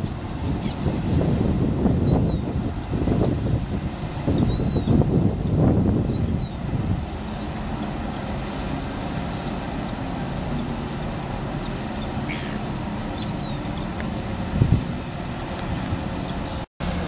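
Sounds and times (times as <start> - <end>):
tug diesel engine rumble: 0.0 - 17.0
high bird chirps: 4.0 - 6.6, 11.5 - 13.9.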